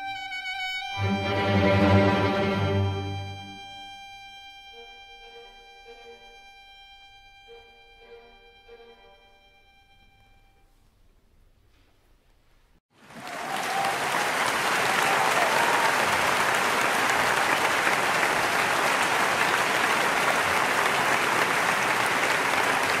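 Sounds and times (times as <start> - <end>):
audience applauding: 12.9 - 23.0.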